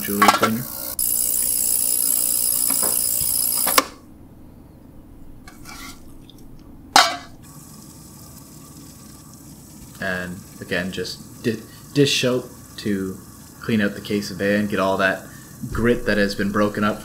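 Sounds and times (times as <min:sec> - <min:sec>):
sharp metal clank: 0:07.0 - 0:07.3
ultrasonic cleaner hissing: 0:07.0 - 0:17.0.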